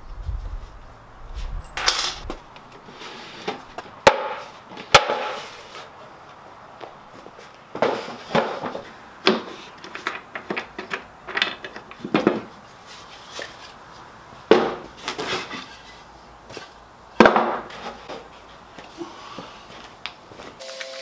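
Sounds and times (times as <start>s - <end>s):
wooden panels knocking and clattering: 7.7s - 12.5s, 17.2s - 18.3s.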